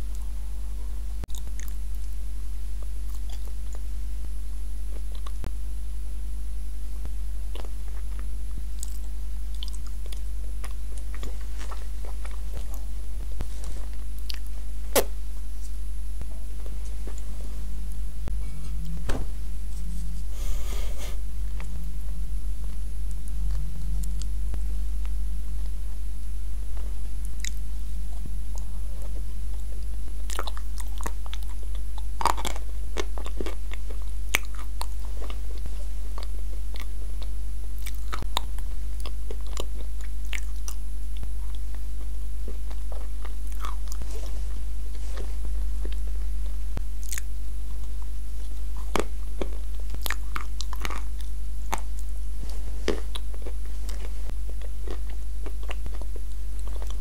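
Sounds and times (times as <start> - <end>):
steady low hum: 0.0 - 57.0
biting and chewing: 28.6 - 46.0, 47.0 - 57.0.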